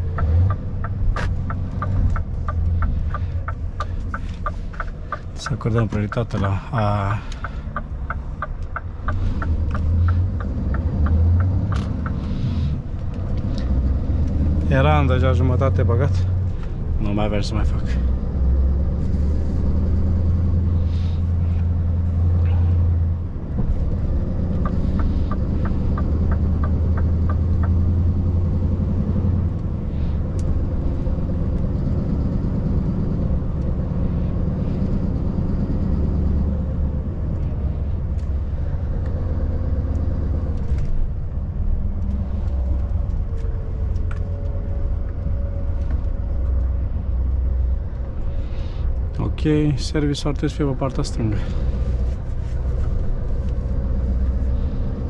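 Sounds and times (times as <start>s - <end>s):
diesel engine rumbling: 0.0s - 55.0s
evenly spaced ticks: 7.1s - 12.3s, 24.5s - 27.8s.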